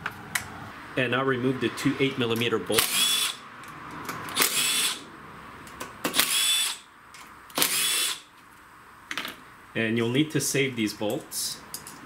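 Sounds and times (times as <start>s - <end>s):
cordless driver whirring: 2.8s - 3.4s, 4.3s - 5.0s, 6.1s - 6.9s, 7.5s - 8.3s.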